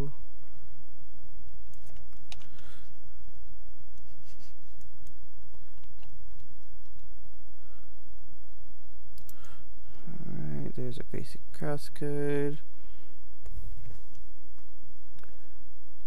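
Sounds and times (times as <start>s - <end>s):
steady low hum: 0.0s - 16.0s
keyboard keys clicking: 1.6s - 2.6s, 4.7s - 7.1s.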